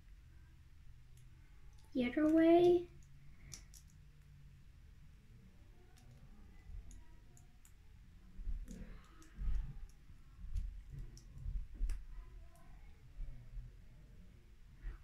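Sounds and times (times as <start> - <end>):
plastic toy pieces clicking: 3.0 - 4.3.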